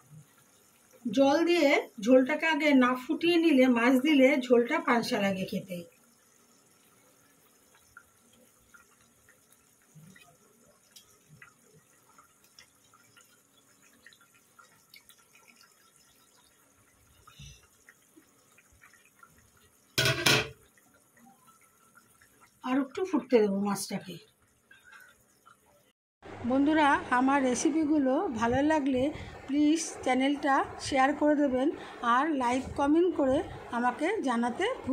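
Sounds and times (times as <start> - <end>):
curry simmering with pops: 0.0 - 25.9.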